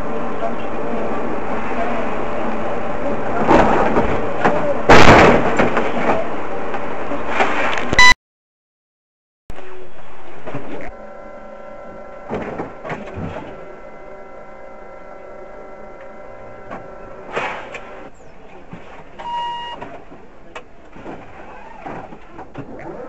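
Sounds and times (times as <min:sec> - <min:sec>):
traffic: 0:00.0 - 0:08.1, 0:09.5 - 0:23.0
short beep: 0:07.9 - 0:08.2, 0:19.2 - 0:19.8
mechanical hum: 0:09.5 - 0:23.0.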